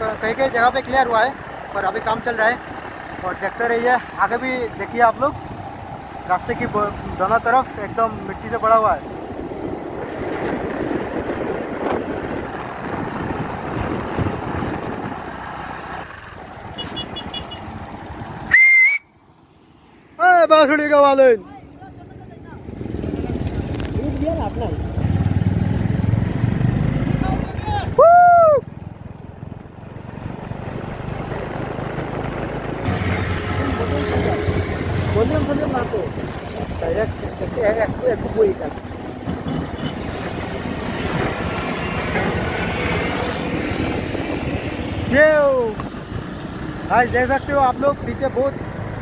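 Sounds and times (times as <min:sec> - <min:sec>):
motorcycle engine: 0:00.0 - 0:49.0
wind rush over microphone: 0:09.0 - 0:15.4, 0:34.0 - 0:46.4
heavy diesel machinery engine: 0:30.5 - 0:44.2.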